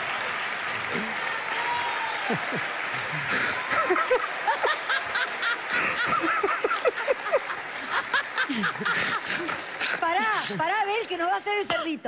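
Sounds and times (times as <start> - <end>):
people laughing hard: 2.2 - 10.6.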